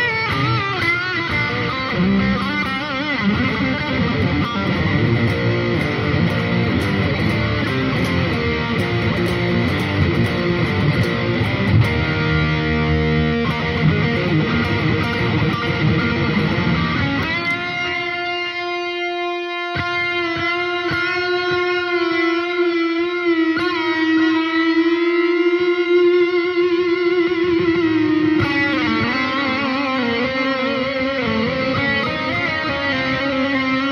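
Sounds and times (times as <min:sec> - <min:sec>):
distorted electric guitar: 0:00.0 - 0:33.9.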